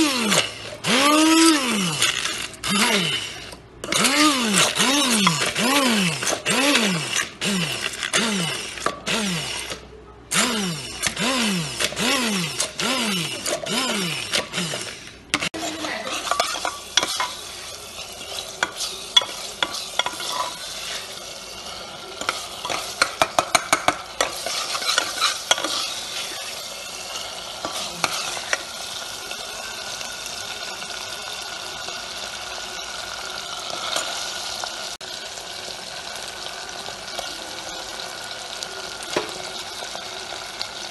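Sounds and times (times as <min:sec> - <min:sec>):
hand blender motor whine: 0:00.0 - 0:16.4
paste sizzling in oil: 0:10.7 - 0:40.9.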